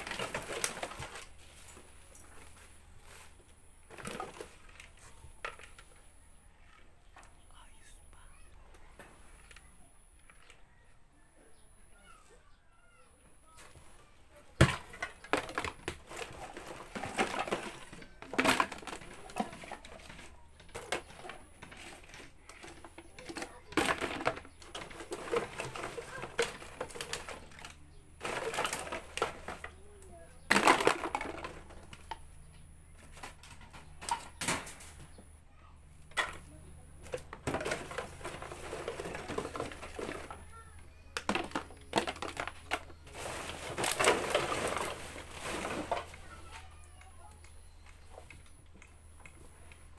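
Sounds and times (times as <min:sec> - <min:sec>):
plastic bottles clattering: 0:00.0 - 0:06.0, 0:14.5 - 0:35.2, 0:36.1 - 0:47.4.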